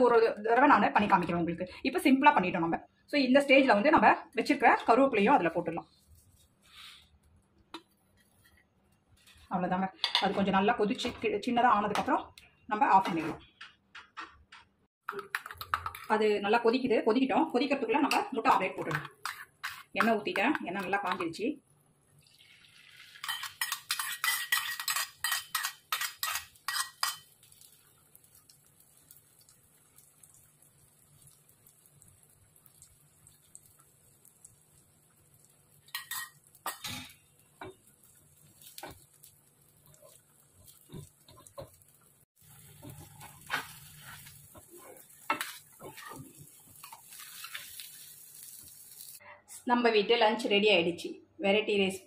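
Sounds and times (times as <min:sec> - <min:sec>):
frying sizzle: 0:22.0 - 0:49.2
spoon clinking against steel bowl: 0:23.2 - 0:27.3, 0:35.9 - 0:37.2.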